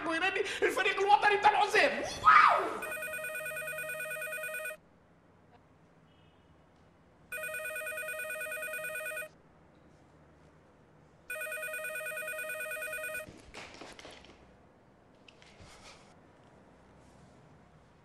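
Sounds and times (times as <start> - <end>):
telephone ringing with warbling trill: 2.8 - 4.8, 7.3 - 9.3, 11.3 - 13.3.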